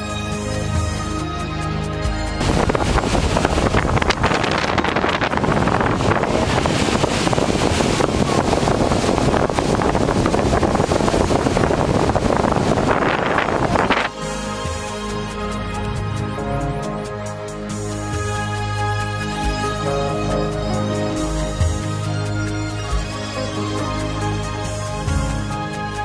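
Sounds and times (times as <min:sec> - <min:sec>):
breaking surf: 0:02.0 - 0:26.0
wind buffeting microphone: 0:02.2 - 0:17.0.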